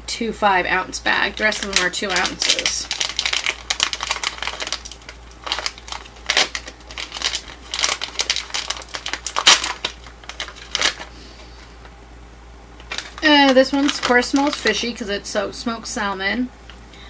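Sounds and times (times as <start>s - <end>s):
plastic pouch crinkling: 1.4s - 11.9s, 12.8s - 15.0s.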